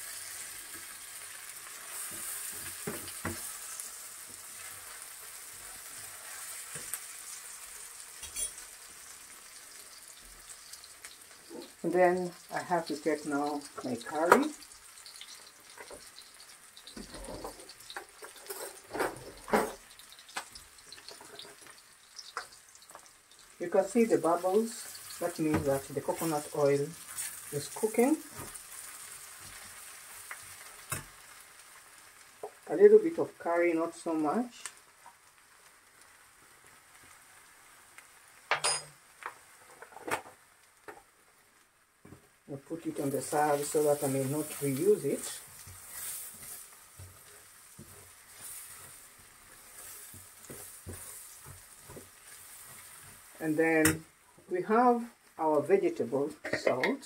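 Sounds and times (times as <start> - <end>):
onions sizzling in oil: 0.0 - 56.9
metal spoon clinking on pan: 8.2 - 8.6, 38.5 - 38.9.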